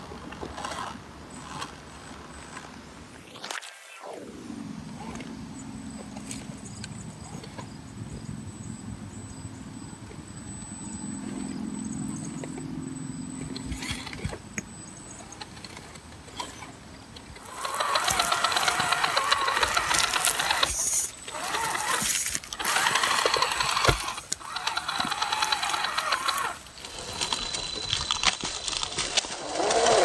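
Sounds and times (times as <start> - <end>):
electric motor whining: 9.6 - 30.0.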